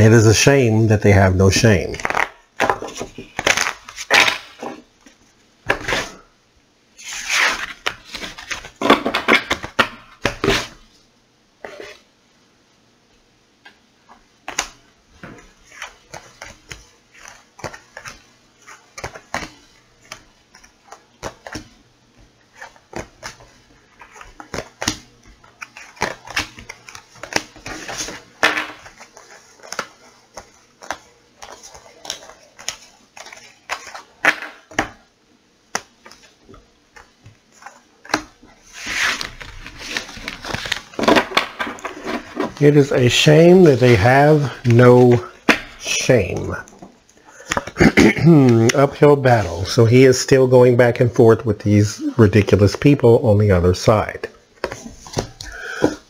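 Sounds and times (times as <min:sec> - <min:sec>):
cards shuffled on tabletop: 0:35.7 - 0:49.8.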